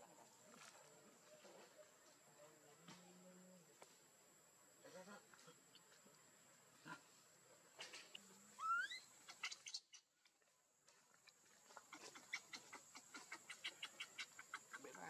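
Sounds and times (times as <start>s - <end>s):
monkey squeaks and clicks: 7.8s - 10.1s
monkey squeal rising in pitch: 8.6s - 9.8s.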